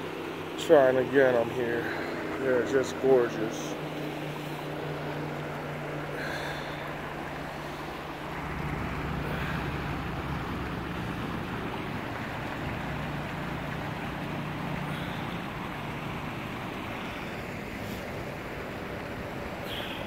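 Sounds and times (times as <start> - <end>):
stream running over rocks: 0.0 - 20.0.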